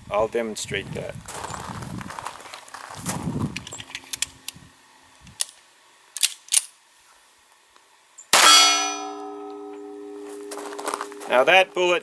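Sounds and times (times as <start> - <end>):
pistol handling clicks: 6.2 - 6.8
pistol shot: 8.4 - 8.9
steel plate target ringing: 8.4 - 11.8.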